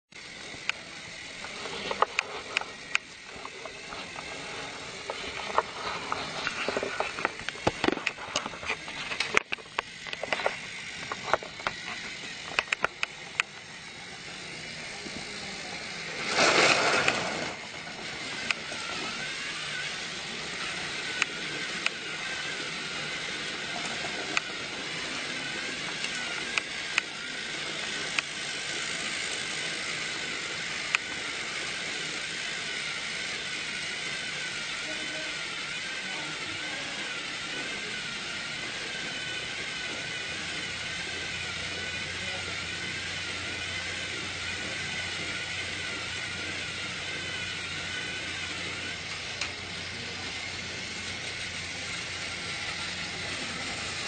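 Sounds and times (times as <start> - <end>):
toy train motor hum: 0.1 - 54.0
loud burst of noise: 0.2 - 54.0
sharp irregular clicks: 6.4 - 13.7, 25.9 - 27.2, 27.8 - 28.4, 30.7 - 31.2.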